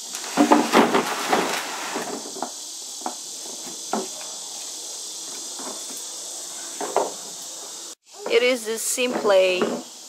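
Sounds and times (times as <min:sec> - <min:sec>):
insects droning: 0:00.0 - 0:10.0.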